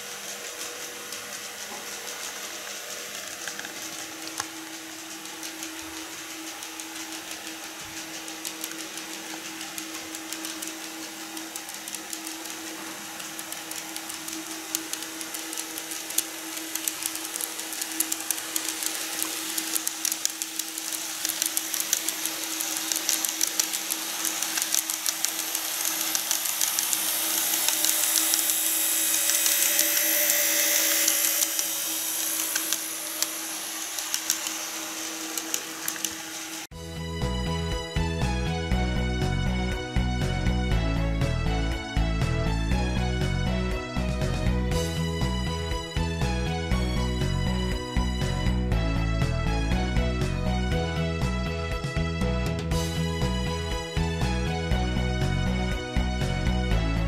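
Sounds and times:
model train motor whirring: 0.0 - 36.7
wheels clicking on rail joints: 0.0 - 36.7.

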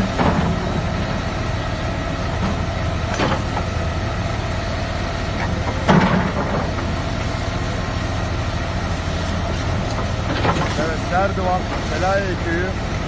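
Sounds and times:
knocks of excavator digging: 0.0 - 1.4, 2.2 - 4.2, 5.3 - 7.5, 9.2 - 13.0
excavator diesel engine running: 0.0 - 13.0.

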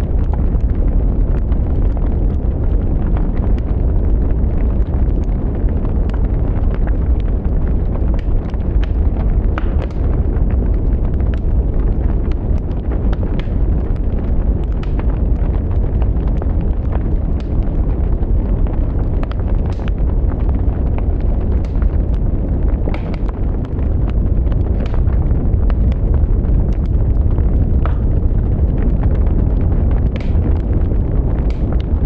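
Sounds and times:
wood fire crackling: 0.0 - 32.0.

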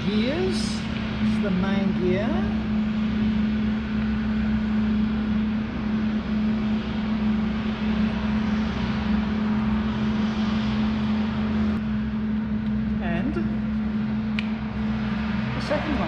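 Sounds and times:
constant low hum: 0.0 - 16.0
mechanical drone: 0.0 - 16.0.

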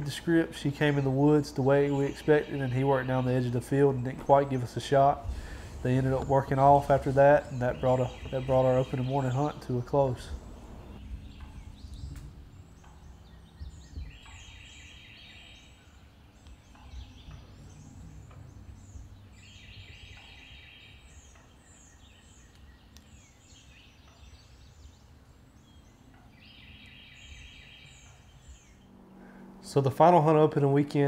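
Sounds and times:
songbirds chirping: 0.0 - 31.0.

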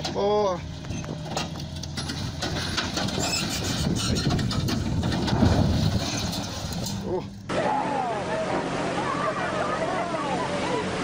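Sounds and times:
metal and dirt clattering: 0.0 - 7.5
truck engine running: 0.0 - 11.0.

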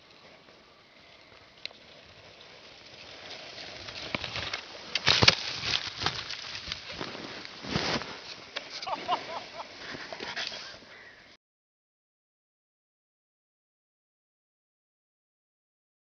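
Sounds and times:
skis scraping over snow: 0.0 - 11.1
skier crashing in snow: 2.9 - 10.8.

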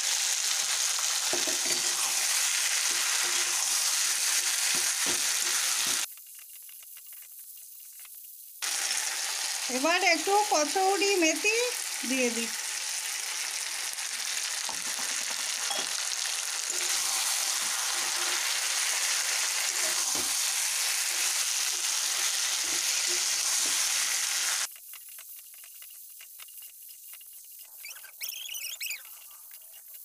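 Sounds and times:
food sizzling in oil: 0.0 - 30.0
spatula scraping metal pan: 1.3 - 6.0, 16.7 - 24.1.

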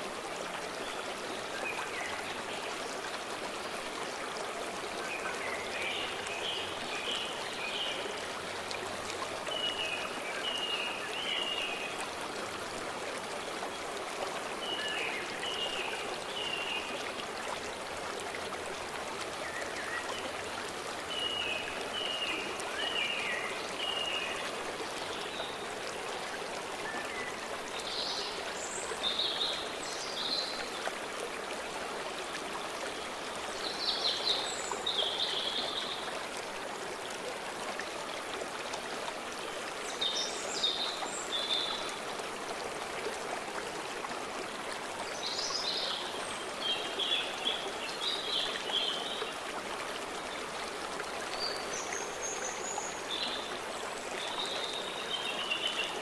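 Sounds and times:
stream rushing: 0.0 - 56.0.

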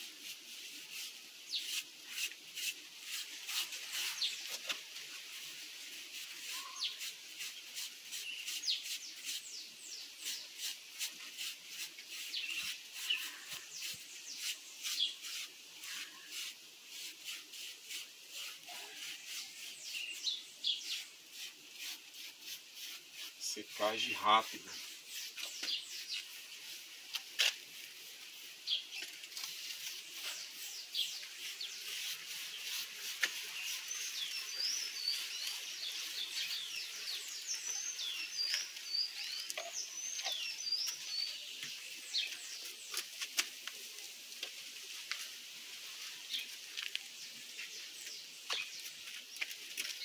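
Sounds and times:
paintbrush scrubbing rough surface: 0.0 - 43.9
small bird chirping: 6.4 - 10.8, 12.1 - 16.5, 18.3 - 22.0, 22.8 - 26.8, 28.6 - 43.1.

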